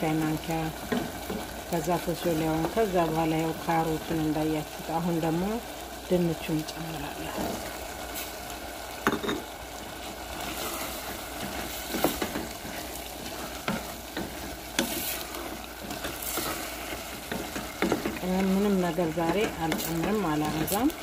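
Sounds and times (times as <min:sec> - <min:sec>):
vegetables sizzling in a pot: 0:00.0 - 0:21.0
spatula knocking and scraping pot: 0:11.3 - 0:20.7.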